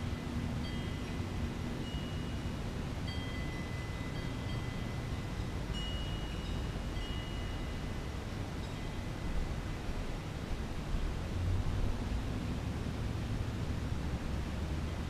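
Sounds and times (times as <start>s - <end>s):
wind chimes ringing: 0.0s - 9.4s.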